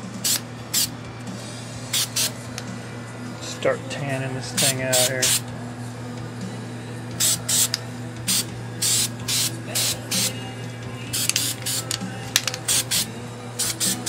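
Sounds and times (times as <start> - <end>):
spray paint can hissing: 0.2 - 0.9, 1.9 - 2.3, 4.6 - 5.4, 7.2 - 10.3, 11.1 - 14.0.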